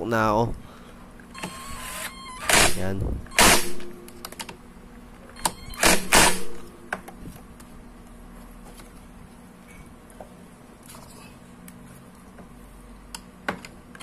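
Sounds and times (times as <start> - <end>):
low steady hum: 0.0 - 14.0
impact wrench bursts: 1.4 - 3.9, 5.8 - 6.6.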